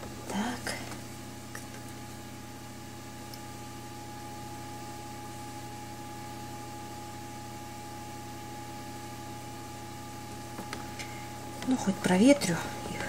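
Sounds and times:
incubator fan humming: 0.0 - 13.0
constant thin tone: 10.6 - 13.0.

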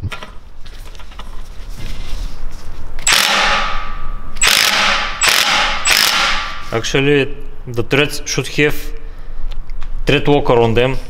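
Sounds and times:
impact wrench hammering: 3.0 - 6.7.

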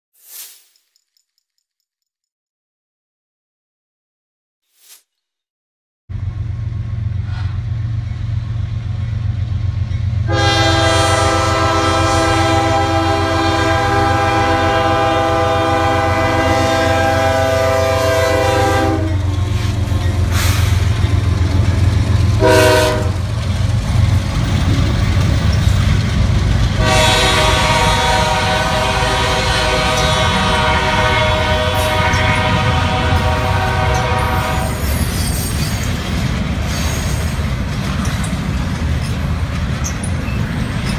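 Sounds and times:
rolling train rumble: 6.1 - 40.9
locomotive horn blasts: 10.2 - 19.3, 22.4 - 23.3, 26.8 - 34.9.

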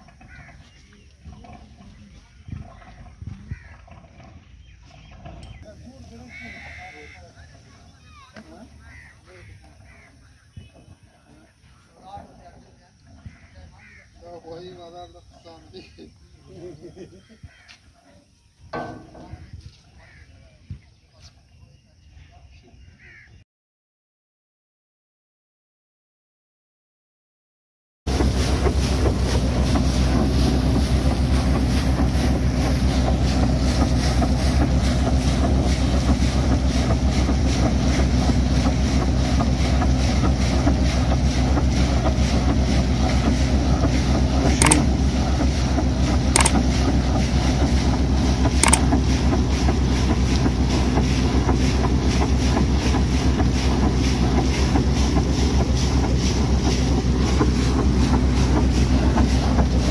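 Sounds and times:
drilling rig engine running: 0.0 - 17.6, 28.1 - 59.9
water jet rushing: 28.1 - 59.9
sharp clicks: 44.6 - 44.9, 46.4 - 46.6, 48.6 - 49.0.

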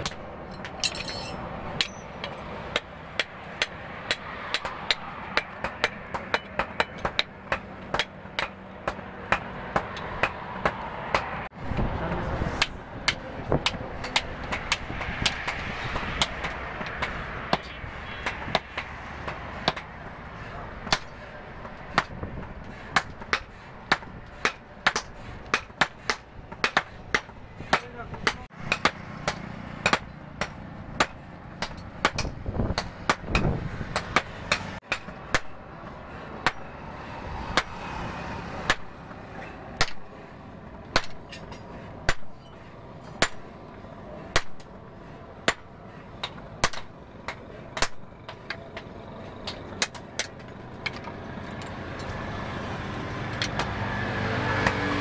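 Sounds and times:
hammer striking metal on anvil: 0.0 - 11.3, 23.0 - 35.6, 36.4 - 36.8, 37.5 - 37.9, 40.9 - 43.6, 44.3 - 44.7, 45.4 - 48.2.

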